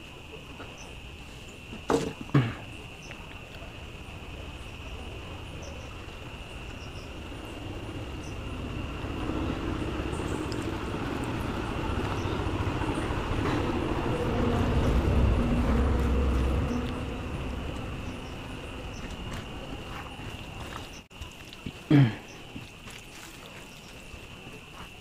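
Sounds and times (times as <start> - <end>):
crickets chirring: 0.0 - 25.0
passing vehicle rumble: 3.7 - 21.1.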